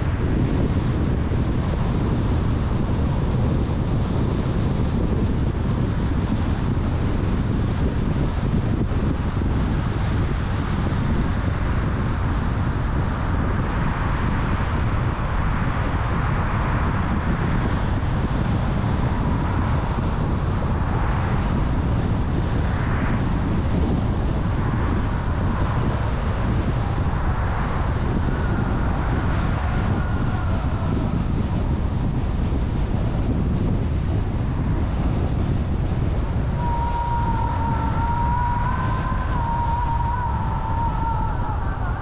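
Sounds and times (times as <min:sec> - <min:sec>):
car driving road noise: 0:12.8 - 0:42.0.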